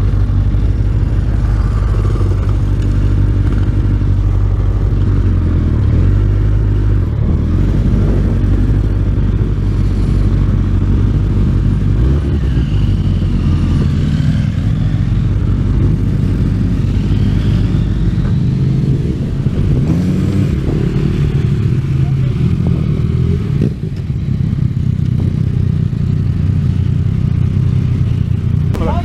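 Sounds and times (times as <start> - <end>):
motorcycle engine low drone: 0.0 - 29.0.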